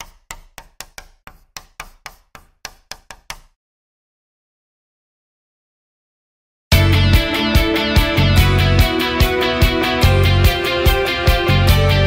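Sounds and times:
sharp taps: 0:00.0 - 0:03.6.

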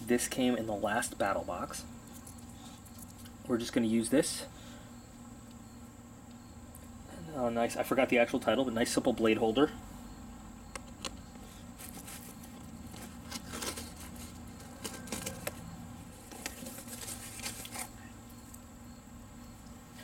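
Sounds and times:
knife slitting packing tape: 0:13.0 - 0:15.5, 0:16.3 - 0:17.9.

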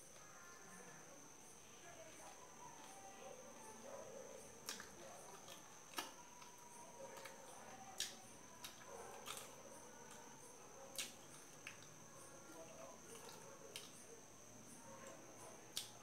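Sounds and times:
person chewing: 0:08.0 - 0:09.5.

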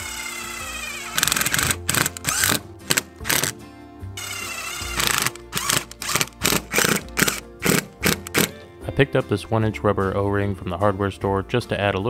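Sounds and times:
cordless driver motor whining: 0:00.0 - 0:03.6, 0:04.2 - 0:08.5
background music: 0:00.0 - 0:12.0.

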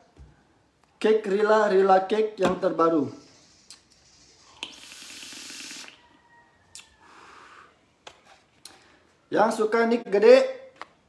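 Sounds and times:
vape draw hissing: 0:03.4 - 0:06.0.

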